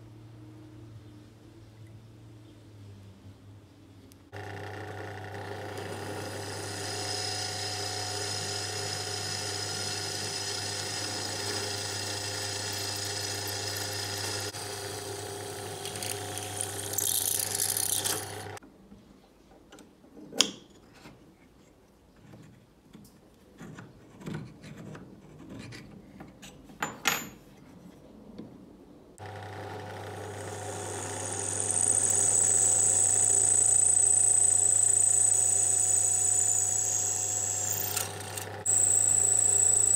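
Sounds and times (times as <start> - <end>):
drill bit whining: 4.4 - 18.6, 29.2 - 39.9
drill press motor running: 4.4 - 18.6, 29.2 - 39.9.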